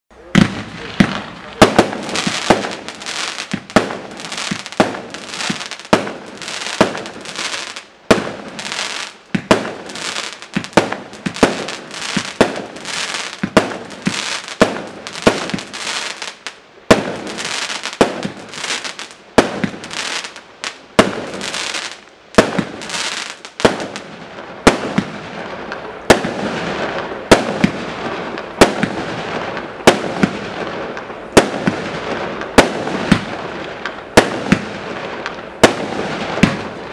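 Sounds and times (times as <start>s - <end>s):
firework bangs: 0.1s - 36.9s
firework hiss: 0.4s - 24.0s.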